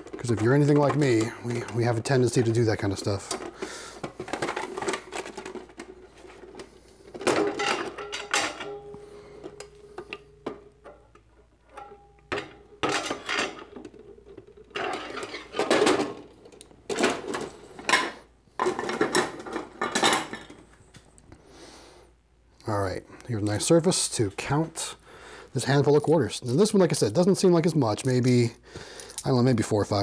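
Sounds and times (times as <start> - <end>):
metal and plastic parts clattering: 0.0 - 20.7.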